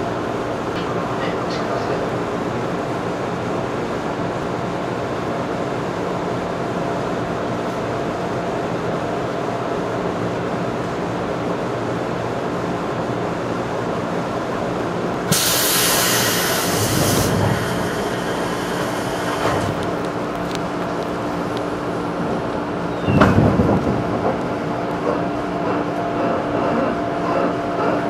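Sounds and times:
electric train running hum: 0.0s - 28.0s
compressed air hiss: 15.3s - 19.6s.

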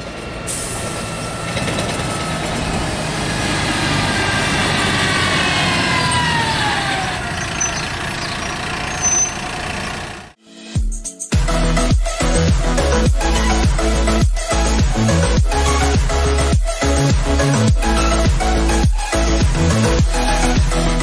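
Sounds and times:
city bus engine whining past: 0.0s - 10.4s.

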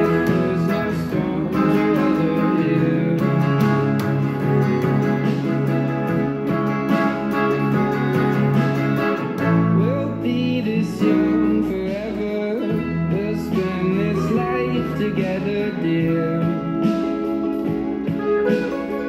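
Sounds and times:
person singing: 0.0s - 4.9s, 9.3s - 19.0s
electric guitar playing: 0.0s - 19.0s.

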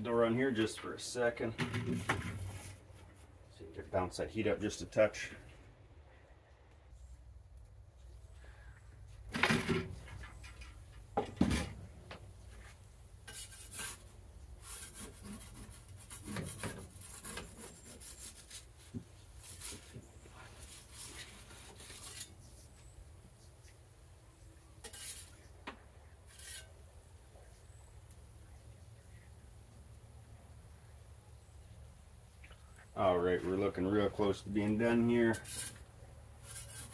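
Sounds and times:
metal peel scraping stone: 13.2s - 18.7s, 20.7s - 22.4s, 24.8s - 25.4s, 26.2s - 26.8s, 34.7s - 36.9s.

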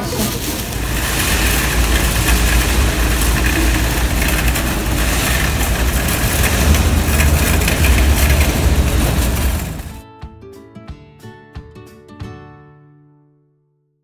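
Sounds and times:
shopping cart rolling on asphalt: 0.0s - 10.0s.

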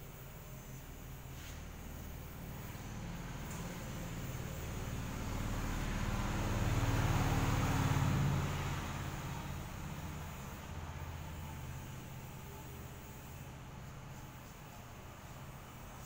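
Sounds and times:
motor vehicle passing: 2.4s - 13.8s.

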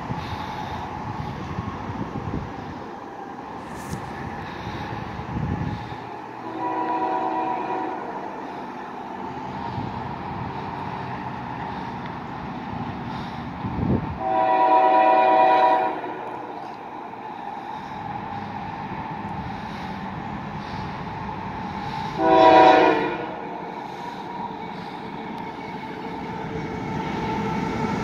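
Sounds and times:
locomotive low rumble: 0.0s - 28.0s
locomotive air horn chord: 5.7s - 8.6s, 14.2s - 16.8s, 21.8s - 25.0s.

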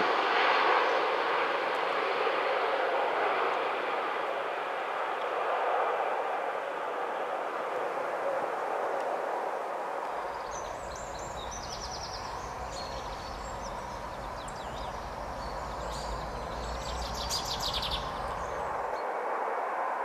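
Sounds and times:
steady rushing background noise: 0.0s - 20.0s
small birds chirping in trills: 10.2s - 19.0s.

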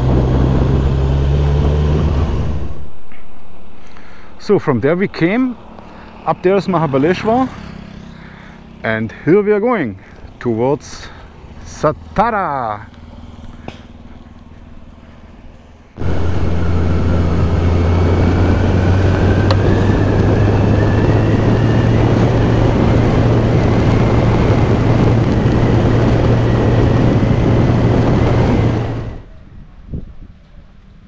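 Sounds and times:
wind rush on microphone: 0.0s - 2.9s, 16.0s - 31.0s
motorcycle engine humming: 0.0s - 29.3s.

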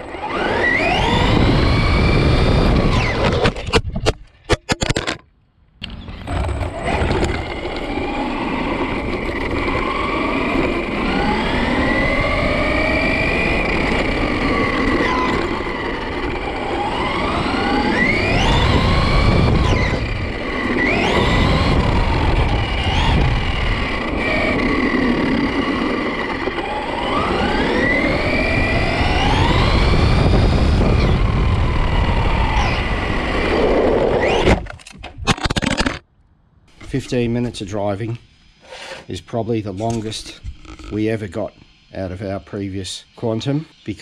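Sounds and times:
electric motor whining: 0.0s - 3.8s, 5.8s - 34.8s.

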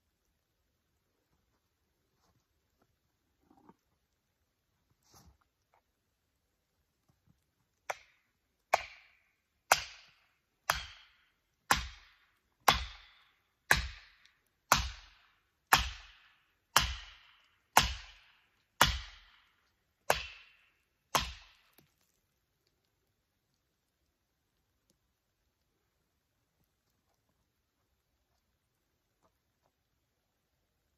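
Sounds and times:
hand tool striking wood: 7.9s - 18.2s, 18.8s - 19.3s, 20.1s - 21.8s.

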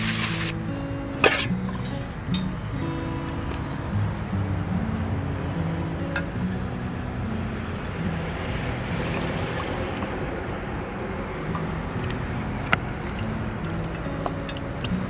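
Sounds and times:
food sizzling in hot oil: 0.0s - 0.6s
oil popping: 0.0s - 2.7s, 7.3s - 15.0s.

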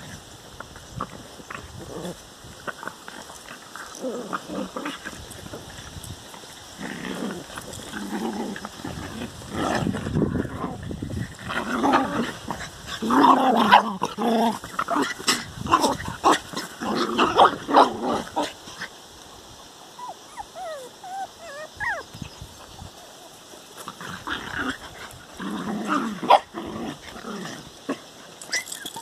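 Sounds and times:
dogs growling and snarling: 0.0s - 5.9s, 6.6s - 19.0s, 19.9s - 29.0s
dog whining: 20.0s - 22.2s.

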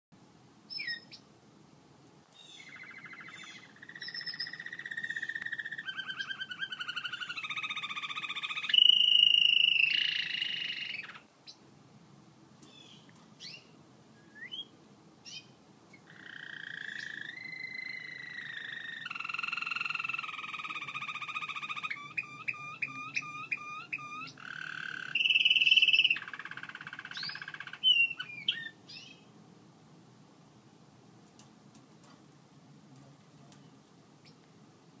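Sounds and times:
canary singing trills: 0.7s - 1.3s, 2.4s - 11.6s, 12.6s - 29.3s
short bird chirps: 2.4s - 11.2s, 16.2s - 29.2s.

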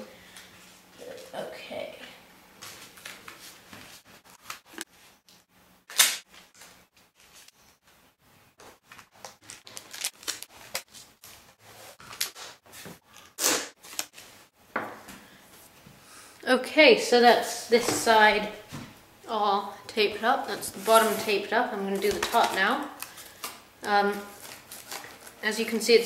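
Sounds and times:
tape ripping: 5.9s - 6.7s, 9.2s - 11.1s, 13.3s - 14.3s.

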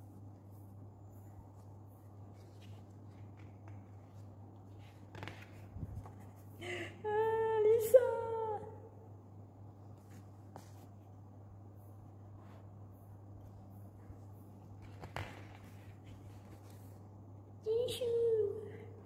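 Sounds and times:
book pages turning: 1.5s - 6.5s, 9.8s - 11.1s, 13.4s - 17.1s.

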